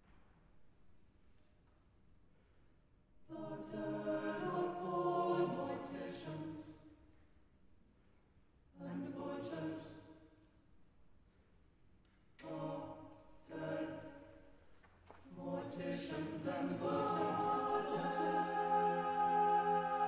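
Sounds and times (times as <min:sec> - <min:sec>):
choir singing unaccompanied: 0:03.3 - 0:06.7, 0:08.8 - 0:10.0, 0:12.4 - 0:14.4, 0:15.2 - 0:20.0.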